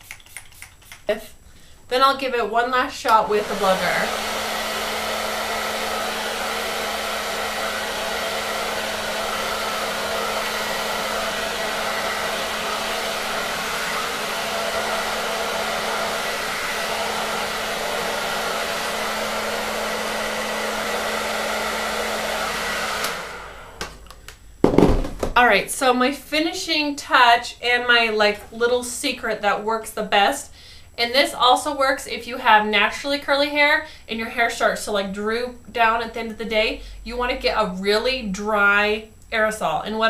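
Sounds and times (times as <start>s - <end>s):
hair dryer blowing: 2.3s - 25.2s.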